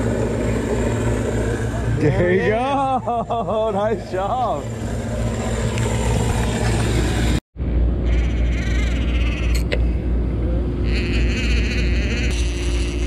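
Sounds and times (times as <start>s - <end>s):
boat engine idling: 0.0s - 7.4s.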